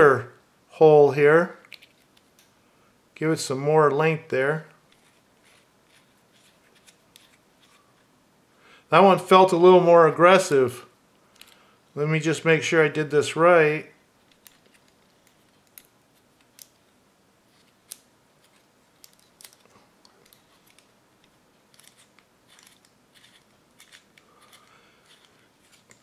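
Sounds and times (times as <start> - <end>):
pencil sharpener scraping and clicking: 21.8 - 26.0.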